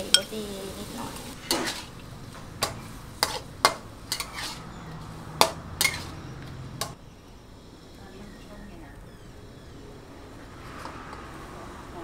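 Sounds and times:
spatula clanking against wok: 0:05.4 - 0:06.2.

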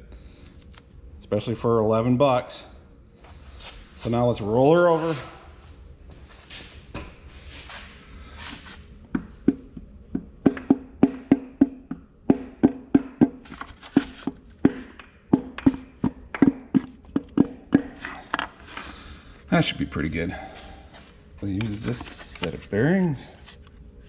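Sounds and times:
light handling noise: 0:20.6 - 0:24.0.

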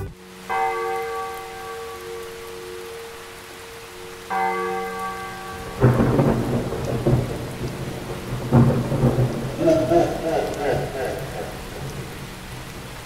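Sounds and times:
heavy rain: 0:00.0 - 0:13.0
thunder: 0:05.6 - 0:12.9.

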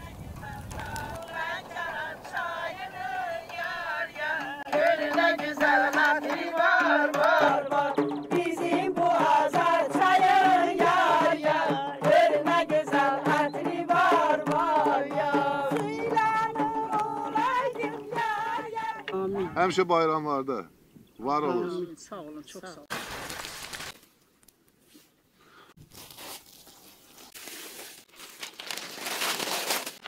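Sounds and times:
frame drums beating: 0:00.0 - 0:19.2
women singing folk song: 0:00.0 - 0:19.4.

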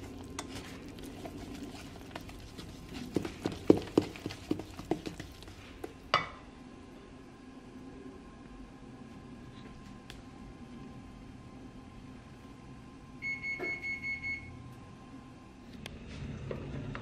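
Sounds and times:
spoon stirring batter: 0:00.0 - 0:06.1.

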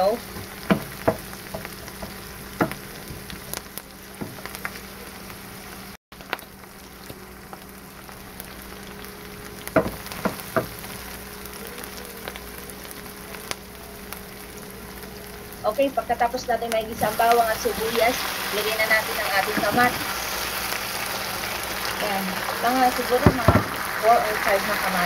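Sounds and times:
onions sizzling in oil: 0:00.0 - 0:25.0
wooden spatula knocking pan: 0:00.4 - 0:03.3, 0:04.2 - 0:04.5, 0:09.8 - 0:10.8, 0:19.5 - 0:20.1.

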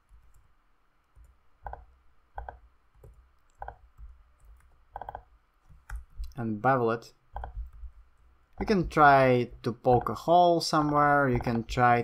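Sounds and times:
computer mouse clicking: 0:00.0 - 0:06.4, 0:07.3 - 0:08.9.

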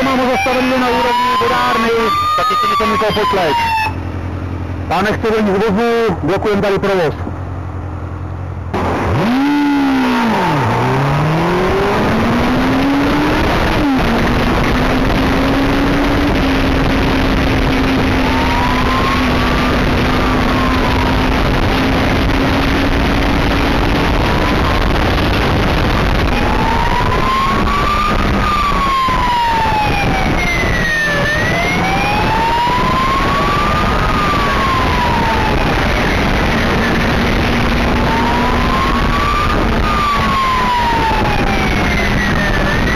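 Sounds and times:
siren wailing: 0:00.0 - 0:04.0, 0:09.1 - 0:42.9
motorcycle engine accelerating: 0:07.3 - 0:42.9
wind rush: 0:10.2 - 0:42.9.

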